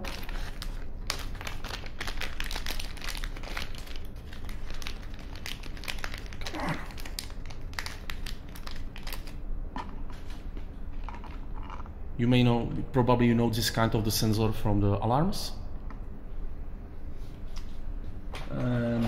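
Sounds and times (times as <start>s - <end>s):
plastic bag crinkling: 0.0s - 9.4s.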